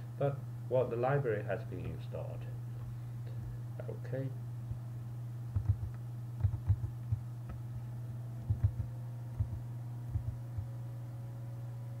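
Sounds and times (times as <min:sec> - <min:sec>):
low electrical hum: 0:00.0 - 0:12.0
keyboard and mouse clicks: 0:05.6 - 0:07.6, 0:08.4 - 0:10.7.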